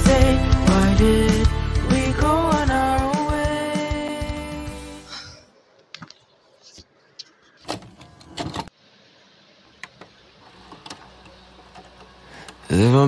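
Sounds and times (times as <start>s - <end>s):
background music: 0.0s - 5.4s.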